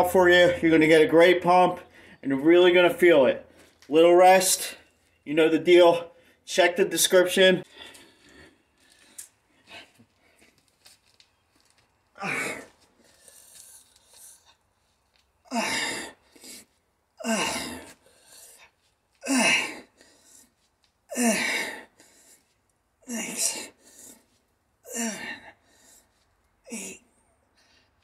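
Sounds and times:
man exhaling with a grunt: 12.2s - 12.7s, 15.5s - 16.2s, 17.2s - 18.0s, 19.2s - 19.9s, 24.9s - 25.5s.

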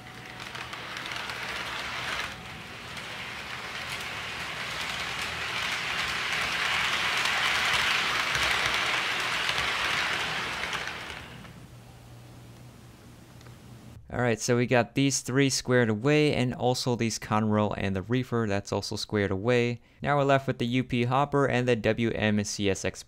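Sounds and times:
model train wheels rumbling on rail: 0.0s - 11.7s.

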